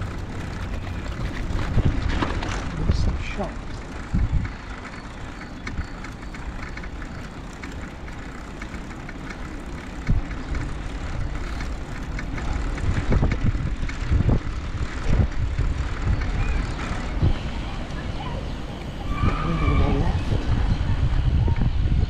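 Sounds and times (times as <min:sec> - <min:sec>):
small clicks and rattles: 0:00.0 - 0:17.2
trike tyre noise on tarmac: 0:00.0 - 0:22.0
wind buffeting on microphone: 0:00.0 - 0:22.0.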